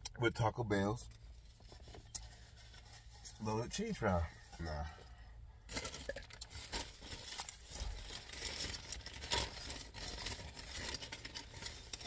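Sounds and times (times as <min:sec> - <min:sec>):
paper bag rustling: 0:05.7 - 0:12.0.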